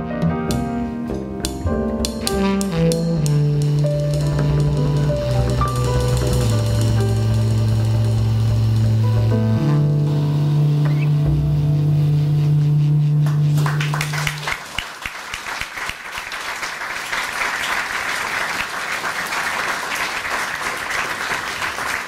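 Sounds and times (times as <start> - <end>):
jazz quartet final chord: 0.0 - 14.5
audience applause: 13.2 - 22.0.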